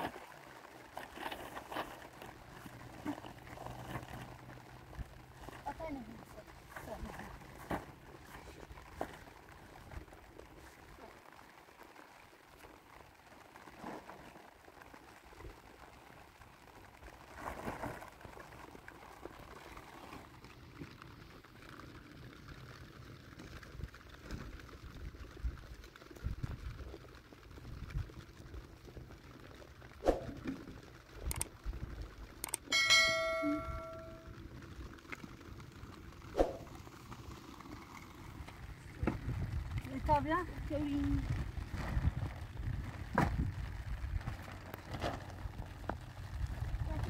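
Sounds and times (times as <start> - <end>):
plastic sheeting rustling: 0.0 - 22.2, 36.2 - 47.0
wind rumbling on microphone: 23.7 - 29.3, 37.7 - 47.0
metal object struck ringing: 32.7 - 34.3.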